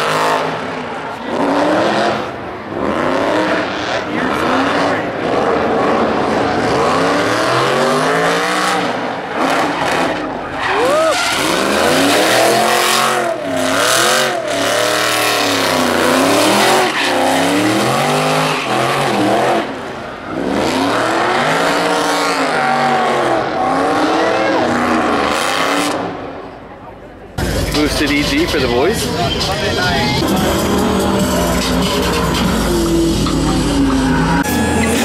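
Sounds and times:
tyres squealing and skidding: 0:00.0 - 0:26.0, 0:27.7 - 0:35.0
car engine revving: 0:00.0 - 0:26.3, 0:27.4 - 0:35.0.

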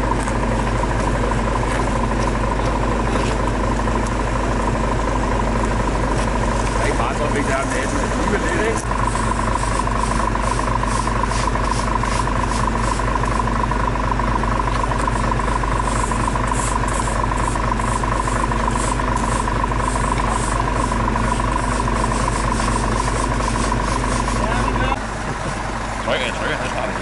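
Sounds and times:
vehicle engines idling: 0:00.0 - 0:27.0
push brooms scraping asphalt: 0:06.0 - 0:13.6, 0:14.6 - 0:25.0.

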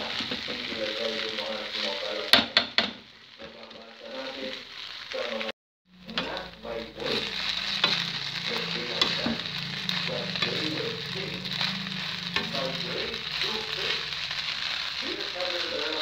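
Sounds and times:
rice sizzling in a pan: 0:00.0 - 0:16.0
low hum: 0:05.9 - 0:15.8.

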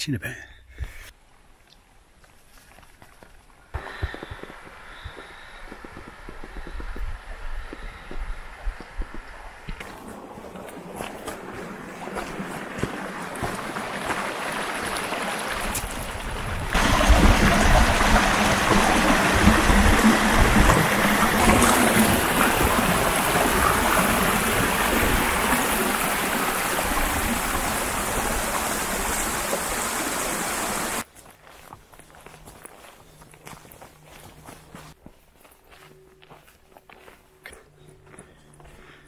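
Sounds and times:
stream running over rocks: 0:09.6 - 0:31.1
water tumbling over rock step: 0:09.9 - 0:31.0.

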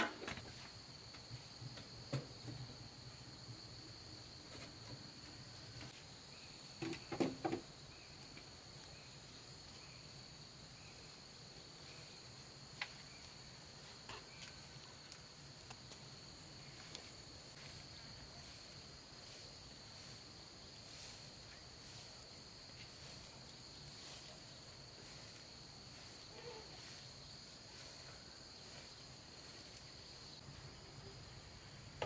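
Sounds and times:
broom sweeping concrete floor: 0:16.8 - 0:30.4.

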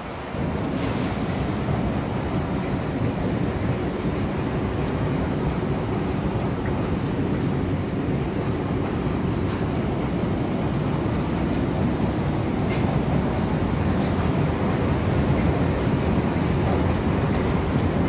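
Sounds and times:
low rumble of city noise: 0:00.0 - 0:18.0.

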